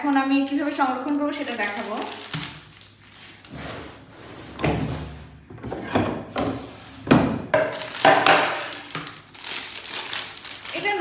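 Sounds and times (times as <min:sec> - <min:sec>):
wooden drawer sliding and shutting: 0:03.5 - 0:07.4.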